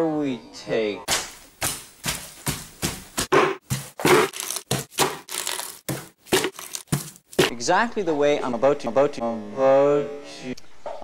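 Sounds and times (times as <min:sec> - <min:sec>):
bare feet squishing food: 0:01.1 - 0:07.6.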